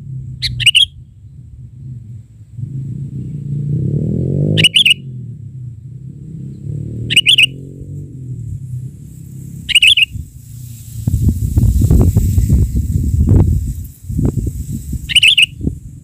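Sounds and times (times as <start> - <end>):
low droning sound: 0.0 - 16.0
bird chirping: 0.4 - 1.4, 4.6 - 5.1, 6.5 - 7.8, 9.7 - 10.2, 15.0 - 15.6.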